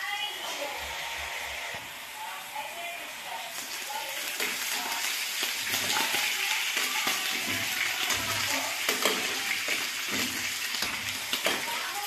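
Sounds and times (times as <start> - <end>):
frying sizzle in oil: 1.8 - 12.0
utensils tapping and scraping: 4.3 - 12.0.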